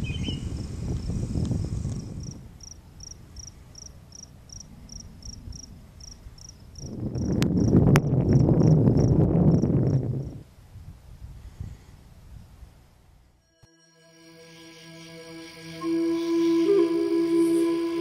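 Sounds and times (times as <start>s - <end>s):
cricket chirping: 2.0s - 10.3s.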